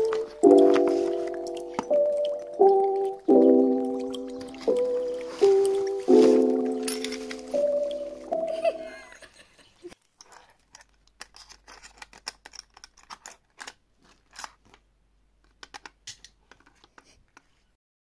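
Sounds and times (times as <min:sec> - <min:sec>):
music: 0:00.0 - 0:08.9
broken glass shards clinking: 0:06.5 - 0:08.1
hands clicking plastic mirror: 0:15.4 - 0:17.2.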